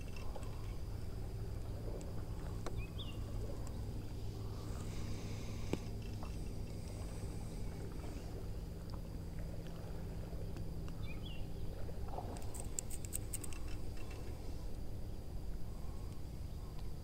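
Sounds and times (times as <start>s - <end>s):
steady low rumble: 0.0s - 17.0s
faint clicks: 12.3s - 14.8s.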